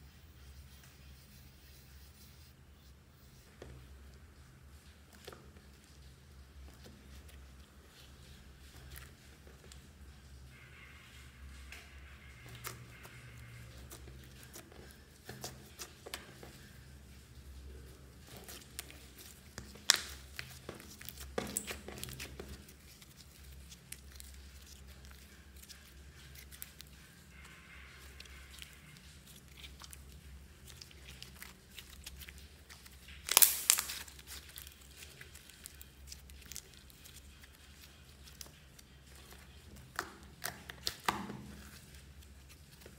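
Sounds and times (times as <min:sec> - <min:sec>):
slime crackling and popping: 0:18.3 - 0:42.9.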